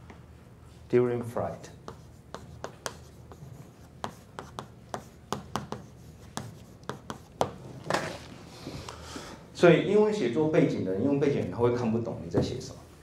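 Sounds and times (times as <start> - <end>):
chalk scraping: 1.8 - 7.5
chalk tapping on blackboard: 1.8 - 7.6.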